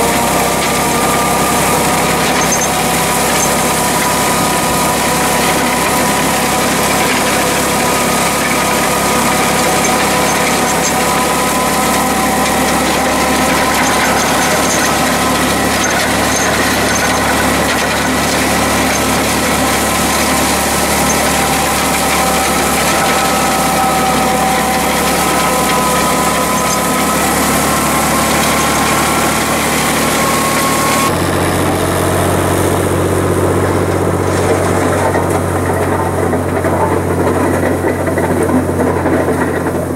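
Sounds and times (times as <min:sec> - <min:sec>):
box blade dragging through gravel: 0:00.0 - 0:31.2
tractor engine running: 0:00.0 - 0:39.9.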